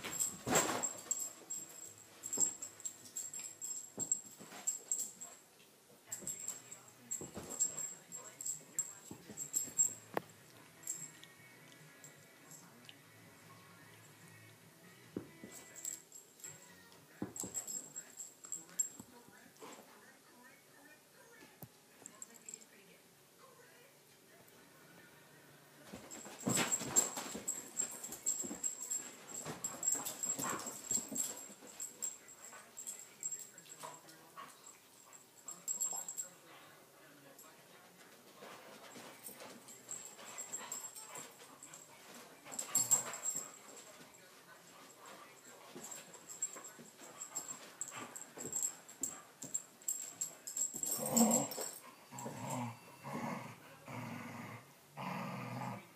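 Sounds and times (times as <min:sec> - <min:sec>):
dogs play-fighting vocal noises: 0:50.7 - 0:55.8.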